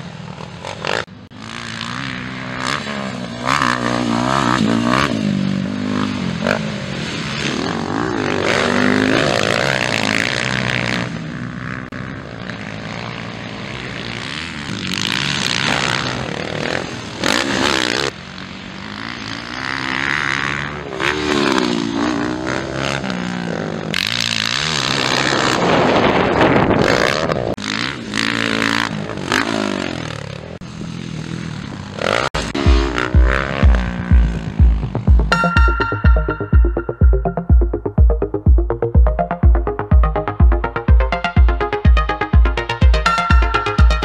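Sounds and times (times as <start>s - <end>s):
motocross bike engines revving: 0.0s - 35.2s.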